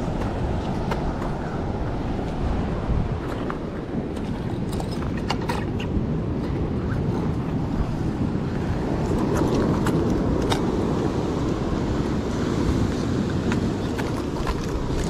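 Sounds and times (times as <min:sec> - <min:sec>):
ocean surf: 0:00.0 - 0:15.0
wind buffeting microphone: 0:00.0 - 0:15.0.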